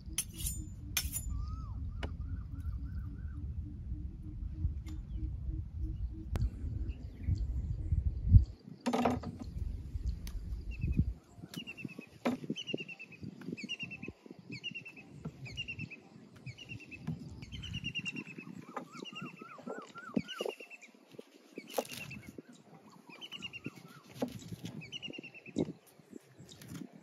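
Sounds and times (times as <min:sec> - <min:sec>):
bird trilling notes: 0:00.0 - 0:07.4, 0:10.7 - 0:25.6
bird chirping: 0:10.6 - 0:26.8.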